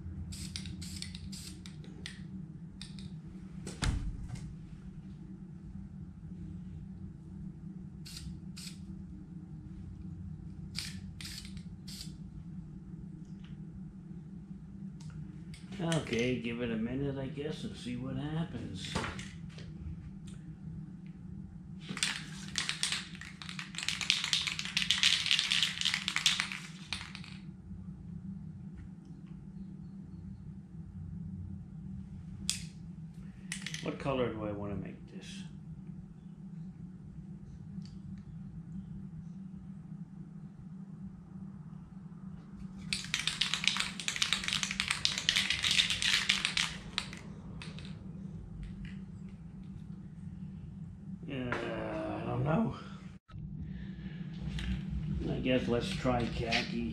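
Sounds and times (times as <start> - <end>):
low steady hum: 0.0 - 56.9
spray can ball rattling: 0.3 - 1.7, 8.1 - 8.8, 10.8 - 12.2, 21.8 - 27.4, 42.8 - 48.0.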